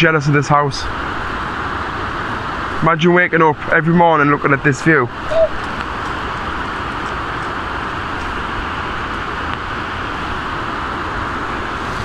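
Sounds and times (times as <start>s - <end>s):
river rushing over rapids: 3.8s - 12.0s.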